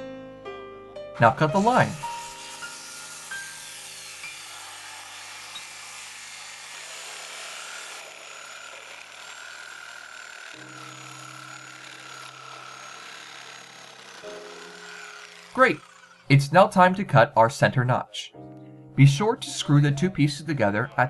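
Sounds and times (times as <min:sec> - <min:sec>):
circular saw cutting wood: 0:01.2 - 0:17.3
reciprocating saw motor whine: 0:01.4 - 0:16.5.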